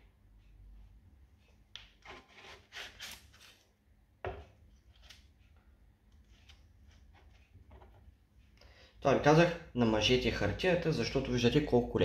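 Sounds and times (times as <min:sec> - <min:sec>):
plastic spatula scraping: 0:01.9 - 0:03.6.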